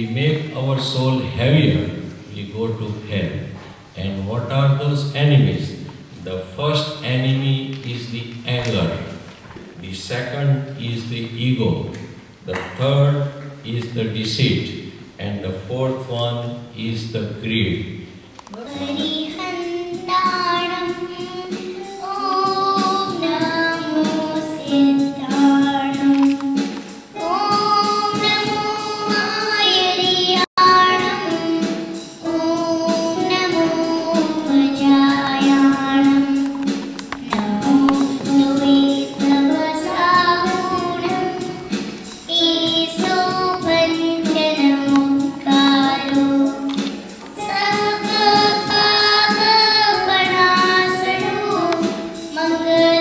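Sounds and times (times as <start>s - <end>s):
girl singing into microphone: 18.4s - 53.0s.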